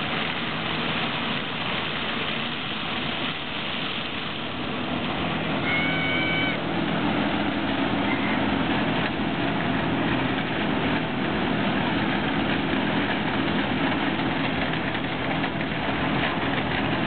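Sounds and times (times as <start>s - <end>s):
combine harvester running: 0.0s - 17.0s
short high whistle: 5.6s - 6.6s.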